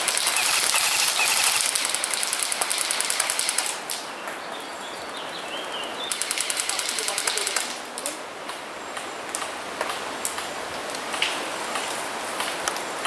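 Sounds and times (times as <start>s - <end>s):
airsoft gun automatic fire: 0.0s - 3.8s, 6.1s - 7.8s.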